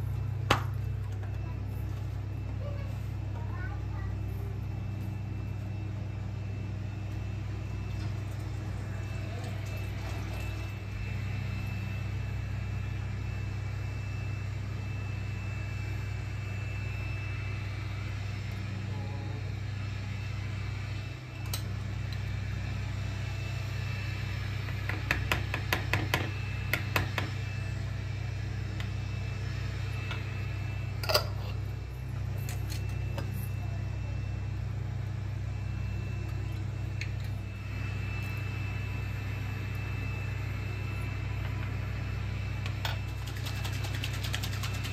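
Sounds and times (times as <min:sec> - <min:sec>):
low mechanical hum: 0:00.0 - 0:44.9.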